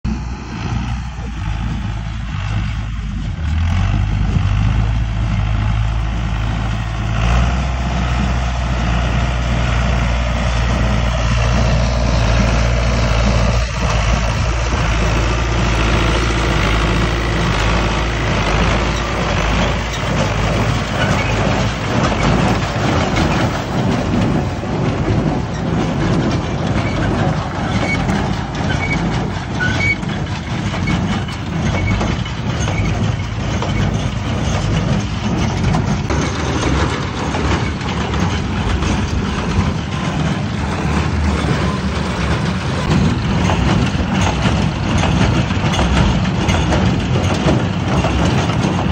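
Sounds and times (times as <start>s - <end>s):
tractor diesel engine running: 0.0s - 48.9s
baler mechanism clattering: 10.1s - 48.9s.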